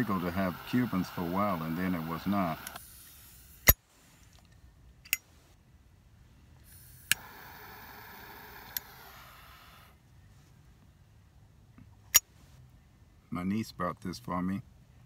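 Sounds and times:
jet flame hissing: 0.0s - 3.8s, 6.7s - 10.0s
lighter clicking: 7.0s - 9.0s.

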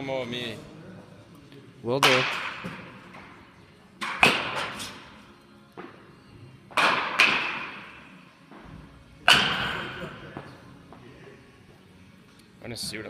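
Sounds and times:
baseball bat cracking ball: 2.0s - 3.4s, 4.0s - 5.0s, 6.7s - 8.1s, 9.2s - 10.5s.

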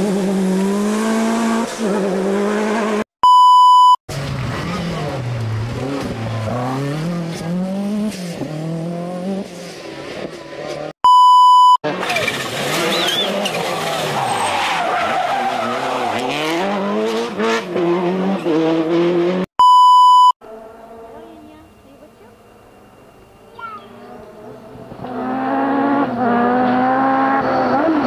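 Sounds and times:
rally car engines revving: 0.0s - 3.1s, 4.1s - 10.9s, 11.8s - 19.5s, 20.4s - 28.0s
high steady beep: 3.2s - 4.0s, 11.0s - 11.8s, 19.6s - 20.4s.

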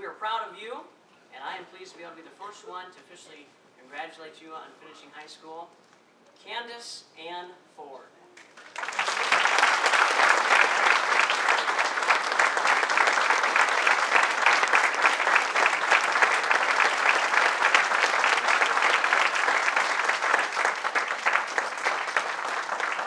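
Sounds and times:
audience applauding: 8.4s - 23.0s.

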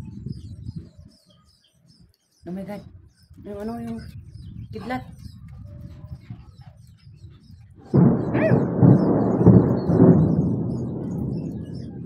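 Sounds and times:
thunder clap and rumble: 7.2s - 12.0s.

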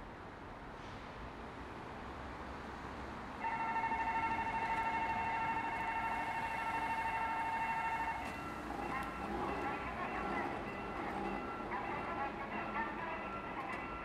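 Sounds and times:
railroad crossing bell: 3.4s - 14.0s.

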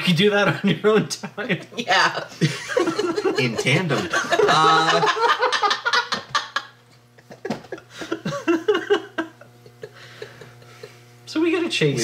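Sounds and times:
people laughing: 2.4s - 11.0s.

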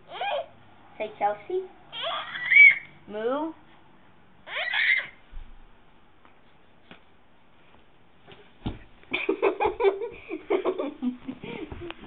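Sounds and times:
child squealing: 0.1s - 0.5s, 1.9s - 3.0s, 4.4s - 5.2s
soft thump: 8.3s - 9.0s
child giggling: 9.1s - 12.0s.

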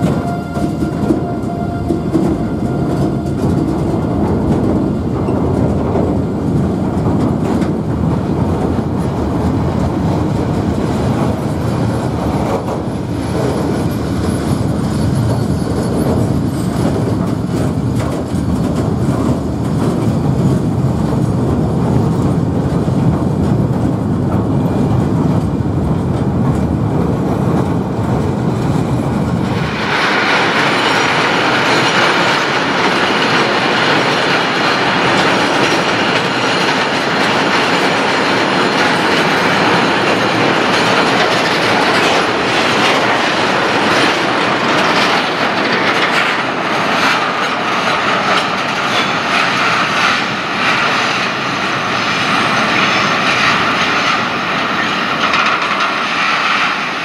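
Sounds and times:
train wheels rumbling on rails: 0.0s - 57.0s
wheels screeching on rails: 11.0s - 20.4s.

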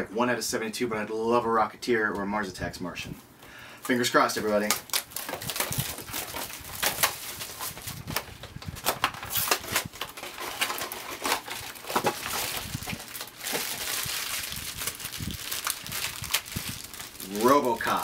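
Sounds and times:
foil bags crinkling: 3.8s - 18.0s.

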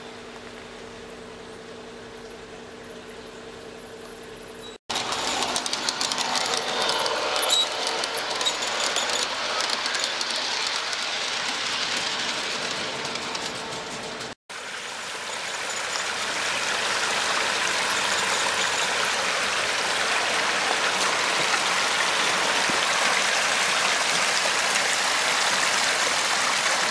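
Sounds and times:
model train wheels clicking on rails: 4.9s - 14.4s, 15.2s - 26.9s
waterfall splashing: 14.5s - 26.9s.

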